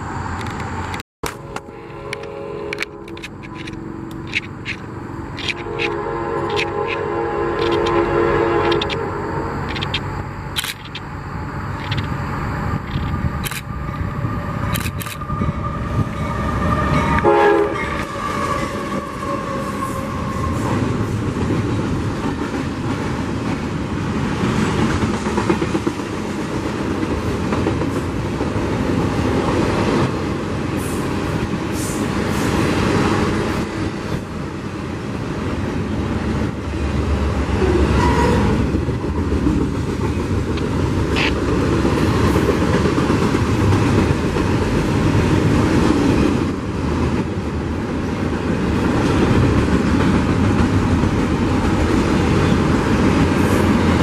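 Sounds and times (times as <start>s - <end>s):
train wheels rumbling on rails: 0.0s - 54.0s
train horn: 1.2s - 4.0s, 5.4s - 9.6s, 15.3s - 20.8s, 37.6s - 38.6s
sharp clicks: 9.6s - 11.1s, 11.7s - 12.2s, 12.8s - 13.7s, 14.7s - 15.2s.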